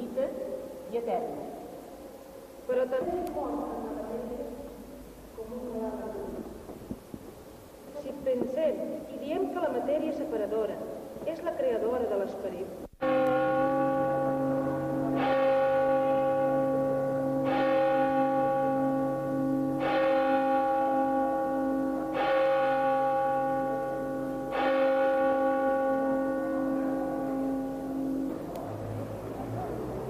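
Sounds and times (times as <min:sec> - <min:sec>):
bell tolling: 0:13.0 - 0:29.4.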